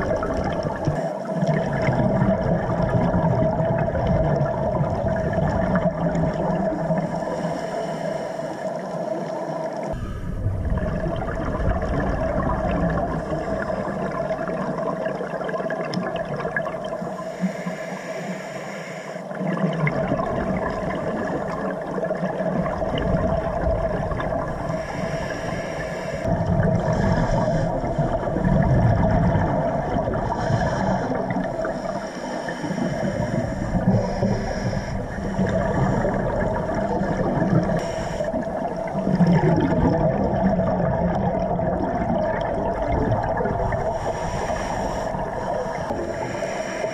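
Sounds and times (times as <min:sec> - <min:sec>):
exhaled bubbles gurgling: 0:00.0 - 0:17.5, 0:19.2 - 0:46.9
diver inhaling through regulator: 0:06.8 - 0:11.2, 0:16.9 - 0:19.3, 0:23.4 - 0:39.1, 0:43.6 - 0:46.9
steady hum: 0:09.7 - 0:14.8, 0:20.2 - 0:46.9.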